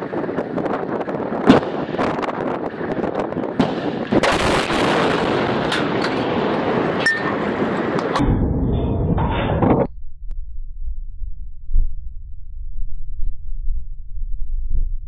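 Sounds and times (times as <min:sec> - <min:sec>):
wind rumble on microphone: 0:00.0 - 0:15.0
rushing blast: 0:01.3 - 0:09.2
gunshots: 0:03.6 - 0:06.5.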